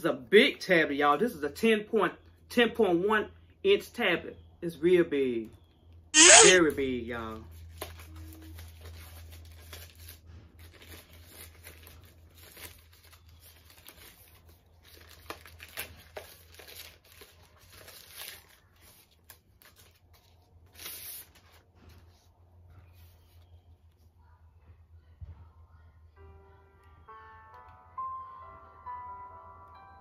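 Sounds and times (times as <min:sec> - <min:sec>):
packaging crinkling and tearing: 0:07.3 - 0:21.6
packaging ripping: 0:07.7 - 0:21.5.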